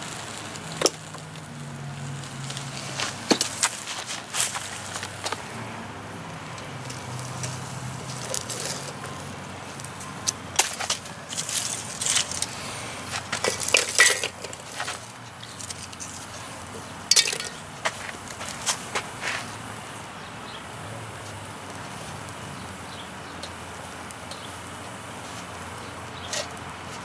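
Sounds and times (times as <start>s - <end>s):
wood sticks clattering on metal grate: 6.6s - 9.2s, 10.0s - 19.5s, 26.2s - 27.0s.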